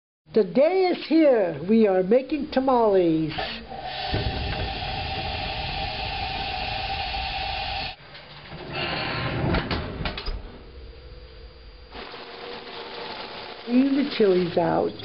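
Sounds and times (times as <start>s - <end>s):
gas burner hissing and humming: 3.0s - 8.0s, 8.7s - 15.0s.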